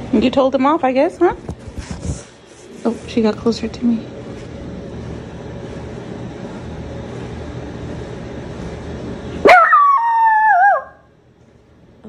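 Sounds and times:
small dog howling: 0:09.4 - 0:11.1.

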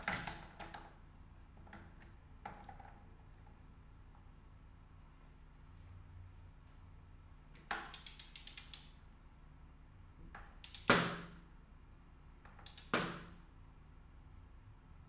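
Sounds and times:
torque wrench ratchet clicks: 0:07.8 - 0:08.9, 0:10.6 - 0:10.9.

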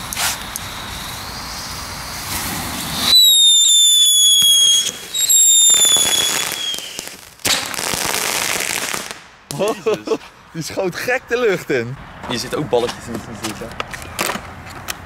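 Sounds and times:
ground fireworks hissing: 0:00.0 - 0:10.5
pyrotechnic whistles: 0:00.6 - 0:07.2.

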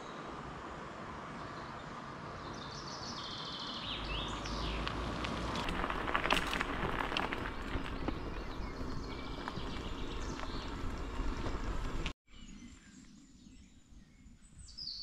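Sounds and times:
wind rumble on microphone: 0:05.5 - 0:15.0.

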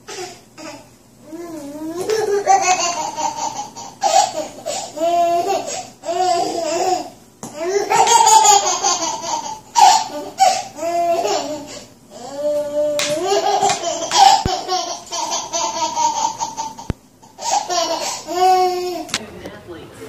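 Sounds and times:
child laughing: 0:01.9 - 0:07.1, 0:07.7 - 0:11.7, 0:13.0 - 0:19.0.

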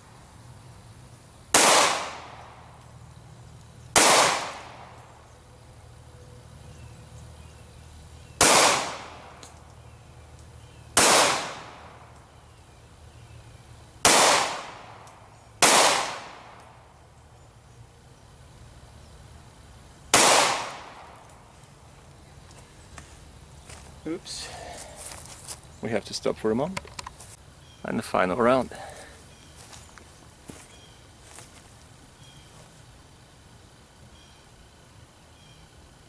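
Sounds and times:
pistol shots: 0:01.5 - 0:02.4, 0:04.0 - 0:04.8, 0:08.4 - 0:09.3, 0:11.0 - 0:12.0, 0:14.0 - 0:15.0, 0:15.6 - 0:16.6, 0:20.1 - 0:21.1.

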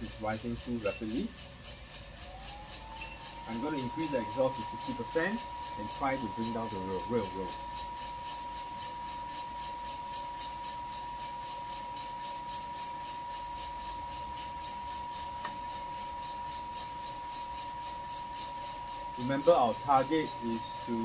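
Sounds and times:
coffee roaster fan whining: 0:00.0 - 0:21.0.

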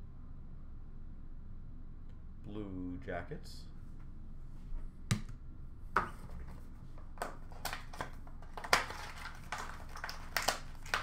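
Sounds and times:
trading cards crinkling and clicking: 0:06.2 - 0:11.0.

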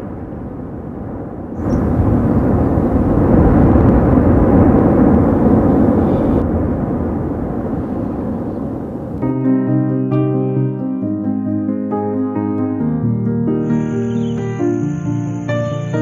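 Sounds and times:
volcanic eruption rumble: 0:00.0 - 0:09.2.

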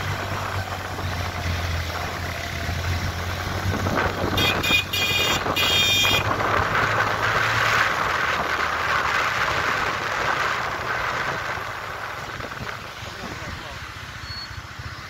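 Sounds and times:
wind noise: 0:00.0 - 0:13.7
road noise: 0:00.0 - 0:15.0
vehicle engine: 0:00.0 - 0:15.0
car horn beeping: 0:04.3 - 0:06.3.

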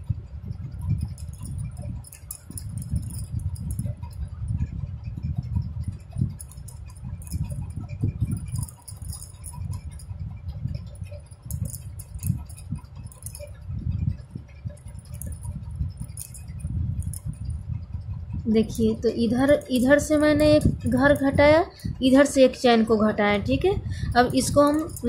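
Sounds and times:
crochet hook clicking: 0:06.2 - 0:10.0, 0:24.1 - 0:25.0.

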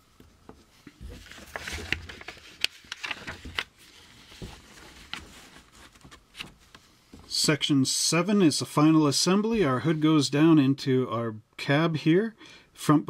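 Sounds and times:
paper rustling and crinkling: 0:00.8 - 0:07.2.

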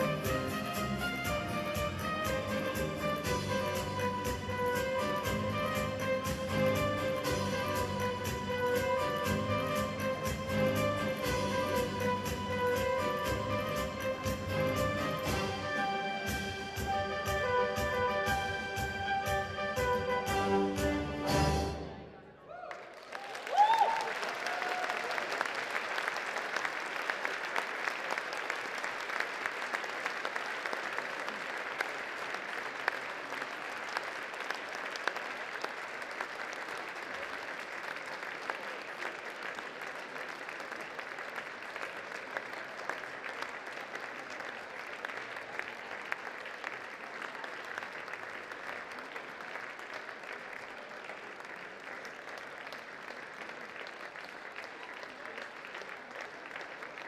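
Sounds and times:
audience applauding: 0:22.5 - 0:57.0.

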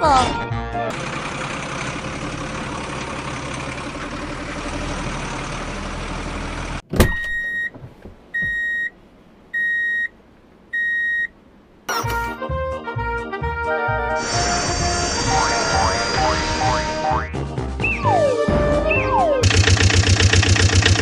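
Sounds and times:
truck engine running: 0:00.0 - 0:06.9, 0:14.2 - 0:21.0
electronic reversing beeps: 0:14.2 - 0:17.2.

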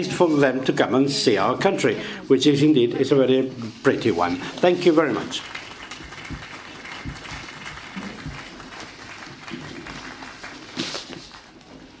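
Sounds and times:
audience applauding: 0:04.5 - 0:12.0.

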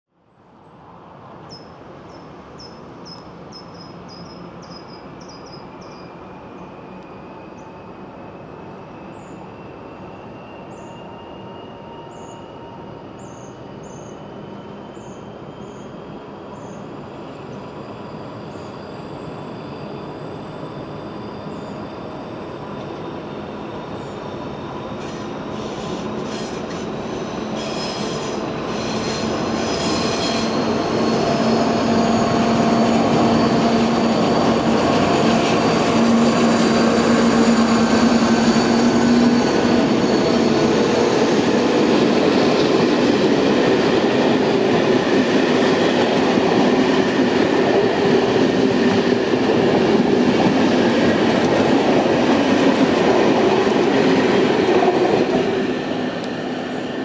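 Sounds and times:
diesel locomotive engine droning: 0:00.9 - 0:57.0.

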